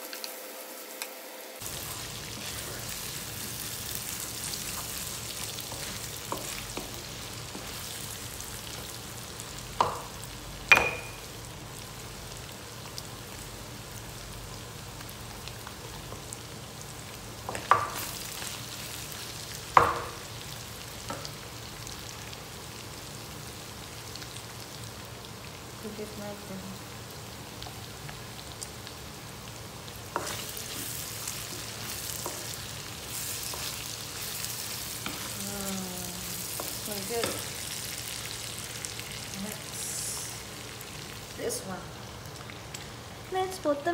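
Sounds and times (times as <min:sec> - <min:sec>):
meat and onions sizzling: 0:00.0 - 0:43.9
spatula knocking on pan: 0:19.7 - 0:20.2.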